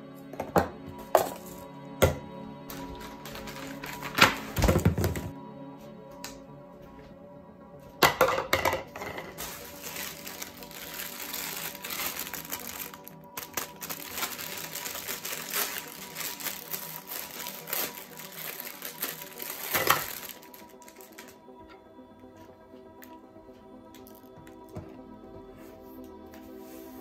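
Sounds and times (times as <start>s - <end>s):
dry noodles crackling: 2.7s - 4.6s, 9.2s - 21.4s
plastic wrapper crinkling: 2.7s - 4.6s, 9.2s - 21.4s.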